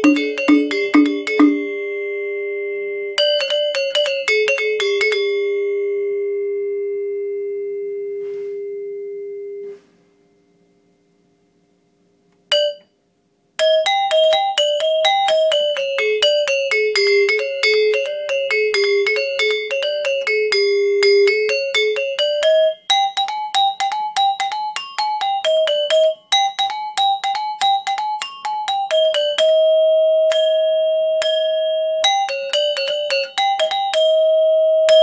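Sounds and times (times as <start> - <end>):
metallophone struck with mallet: 0.0 - 2.4, 12.5 - 13.0, 13.6 - 35.0.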